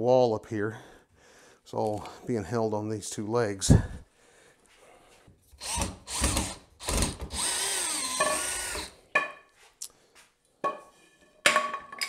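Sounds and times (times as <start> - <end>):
power drill running: 5.6 - 9.0.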